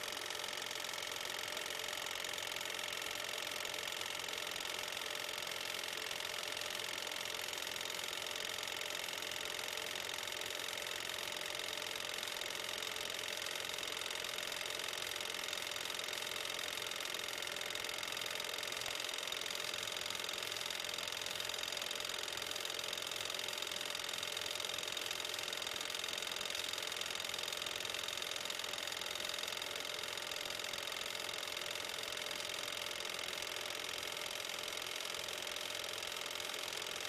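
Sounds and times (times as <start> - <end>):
film projector whirring: 0.0 - 37.0.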